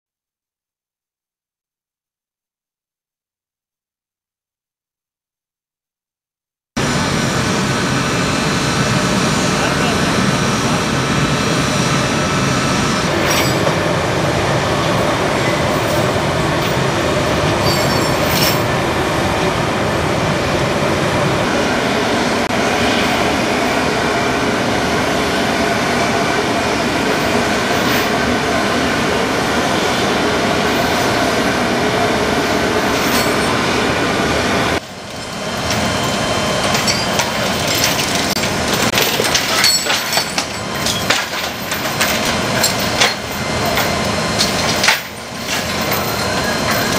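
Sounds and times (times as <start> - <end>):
jet engines roaring: 6.8 - 46.9
metal chains clinking: 17.6 - 18.7, 35.1 - 46.9.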